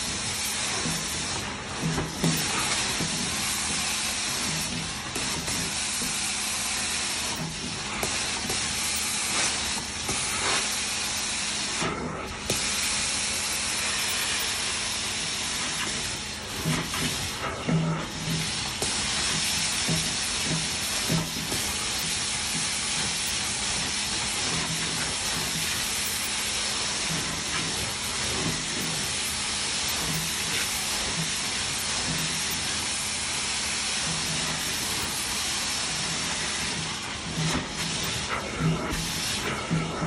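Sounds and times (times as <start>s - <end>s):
carpet extraction wand hissing: 0.0s - 40.0s.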